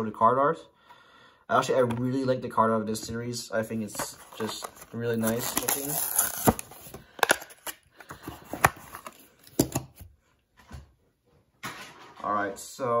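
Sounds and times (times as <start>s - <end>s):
plastic blister packaging crinkling: 3.8s - 9.7s.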